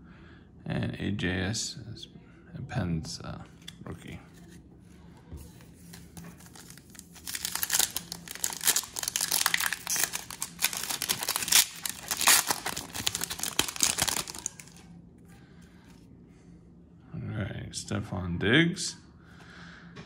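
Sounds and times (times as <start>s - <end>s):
foil wrapper crackling: 6.0s - 14.9s.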